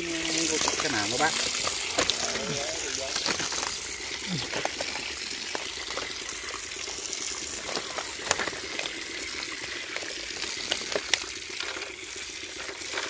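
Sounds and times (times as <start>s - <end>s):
hose water gushing onto fish: 0.0s - 13.0s.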